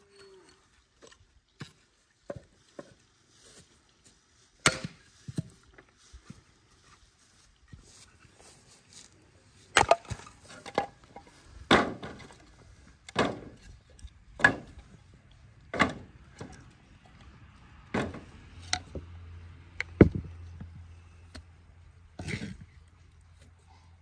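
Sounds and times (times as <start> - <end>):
hard chopping strikes: 4.6 - 5.0.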